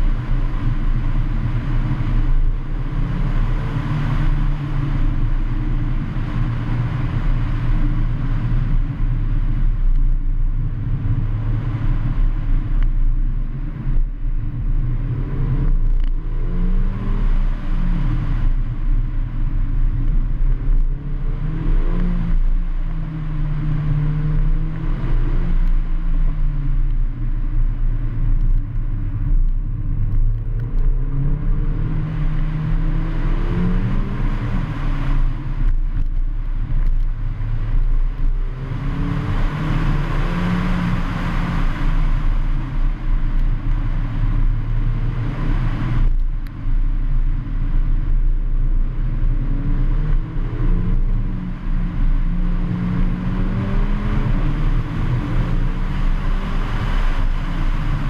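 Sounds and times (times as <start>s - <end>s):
car engine pulling hard: 0.0s - 58.0s
rough road rumble: 0.0s - 58.0s.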